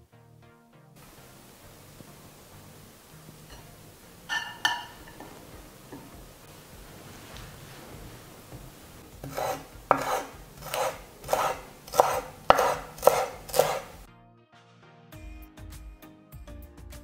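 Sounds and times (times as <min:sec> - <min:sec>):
music: 0:00.0 - 0:17.0
knife chopping on wooden board: 0:09.2 - 0:14.0.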